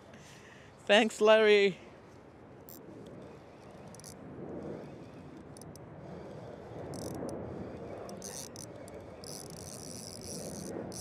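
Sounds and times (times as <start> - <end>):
steady rushing noise: 0.0 - 11.0
fishing reel drag buzzing: 2.7 - 11.0.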